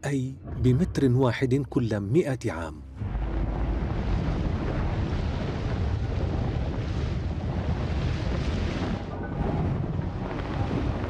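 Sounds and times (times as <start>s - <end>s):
underwater rumble: 3.0s - 11.0s.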